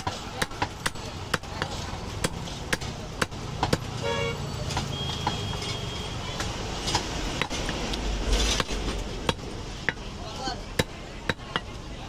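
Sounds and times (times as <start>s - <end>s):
cleaver chopping meat on wood block: 0.0s - 4.0s, 10.8s - 11.7s
passing traffic hum: 0.0s - 12.0s
short pitched beep: 4.9s - 6.1s.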